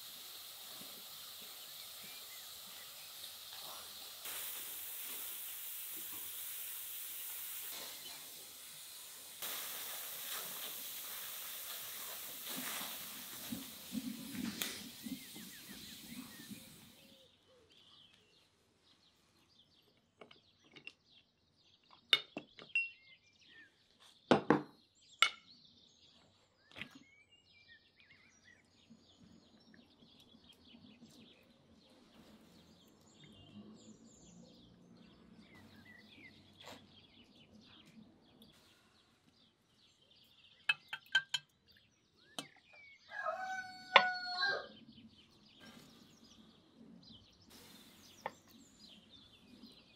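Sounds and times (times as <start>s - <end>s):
wood fire crackling: 0.0s - 17.0s
faint birds chirping: 0.0s - 49.9s
rooster crowing: 43.1s - 44.8s.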